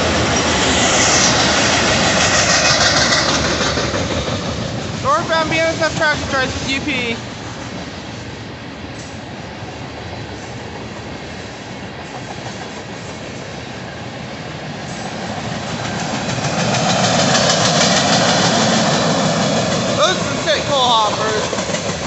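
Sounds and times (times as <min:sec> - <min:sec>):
freight train rolling past: 0:00.0 - 0:22.0
wheels clicking over track: 0:15.3 - 0:22.0.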